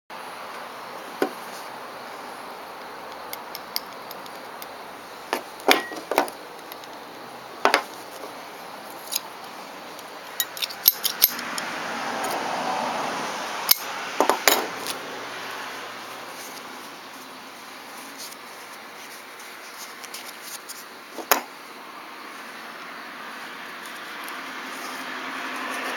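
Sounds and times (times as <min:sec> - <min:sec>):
soft rustling: 0:16.1 - 0:22.6.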